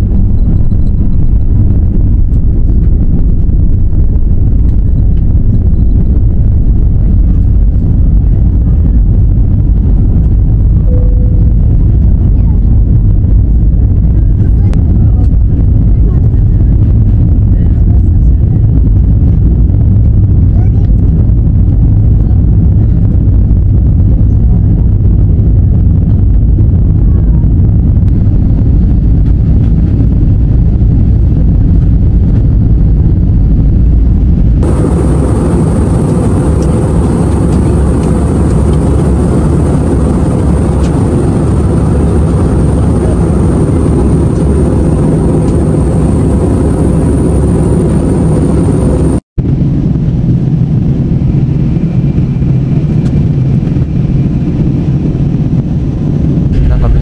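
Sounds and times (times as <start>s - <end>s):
jet engine cabin noise: 0.0s - 57.0s
faint high whine: 10.8s - 12.4s, 34.6s - 52.6s.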